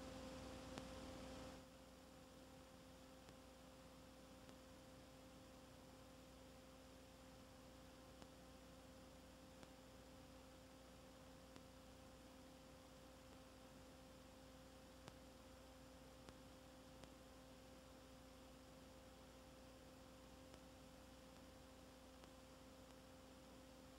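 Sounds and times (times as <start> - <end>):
faint steady hum: 0.0 - 23.9.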